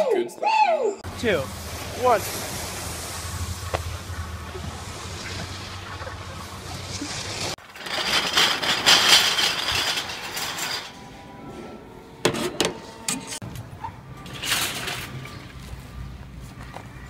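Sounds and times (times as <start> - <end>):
machine rushing noise: 1.0 - 11.4.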